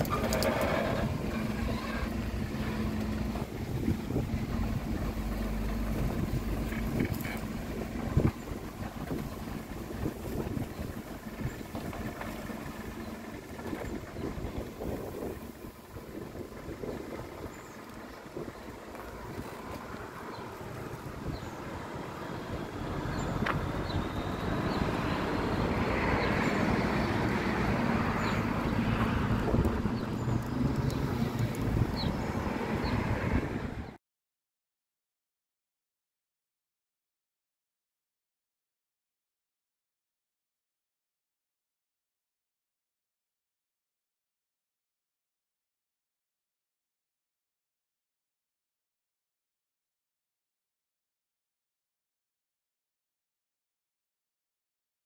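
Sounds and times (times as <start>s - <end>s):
wind on microphone: 0.0s - 12.3s, 13.3s - 34.0s
diesel truck engine idling: 0.0s - 32.3s.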